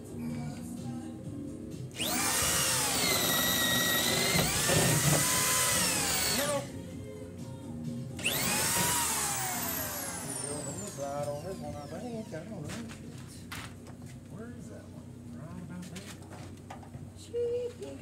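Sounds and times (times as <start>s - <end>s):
power drill boring through wood: 2.0s - 6.7s, 8.2s - 12.6s.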